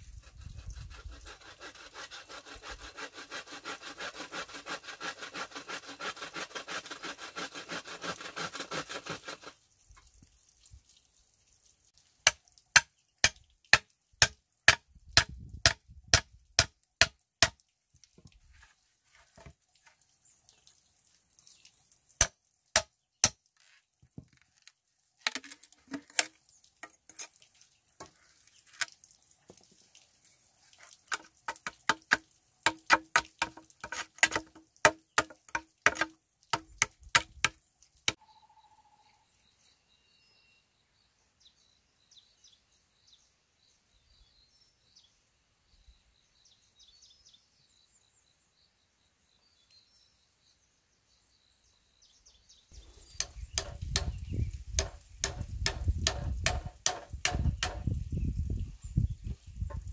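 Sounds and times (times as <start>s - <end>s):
saw rasping through wood: 0.2s - 9.6s, 31.8s - 37.6s
loud sharp knocks: 53.2s - 54.2s, 54.8s - 57.9s.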